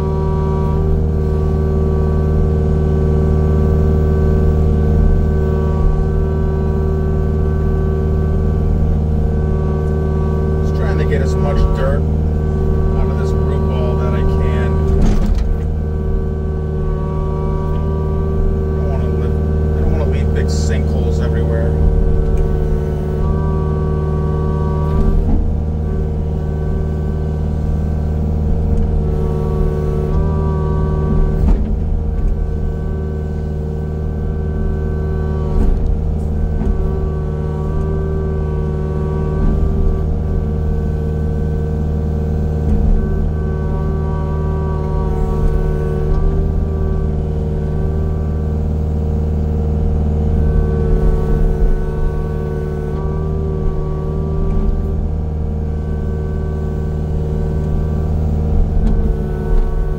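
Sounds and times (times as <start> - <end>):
heavy machinery engine running: 0.0 - 59.9.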